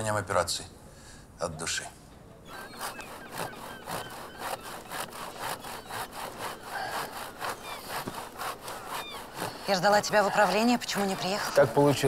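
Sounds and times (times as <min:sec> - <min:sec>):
handsaw cutting through log: 0:02.5 - 0:12.0.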